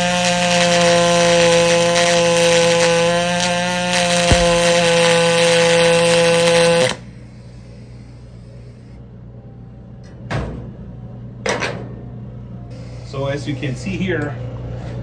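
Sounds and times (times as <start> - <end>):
welding arc buzzing: 0.0 - 7.0
short knocks: 4.3 - 5.0.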